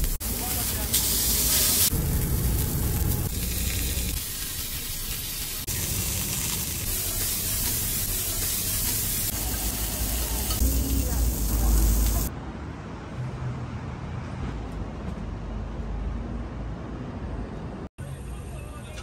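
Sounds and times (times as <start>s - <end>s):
pork belly sizzling: 0.0s - 12.3s.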